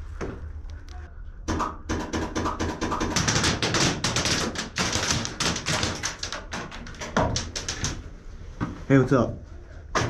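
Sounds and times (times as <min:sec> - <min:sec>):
clatter of hard taps: 0:01.6 - 0:08.0.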